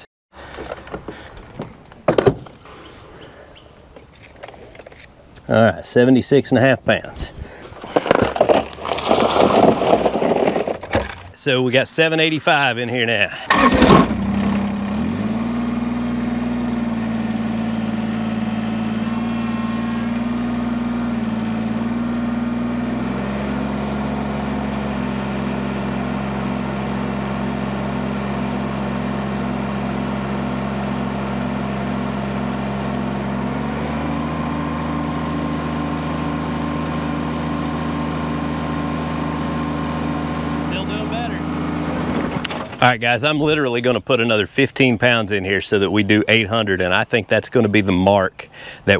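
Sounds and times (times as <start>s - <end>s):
tractor diesel engine running: 12.3s - 47.0s.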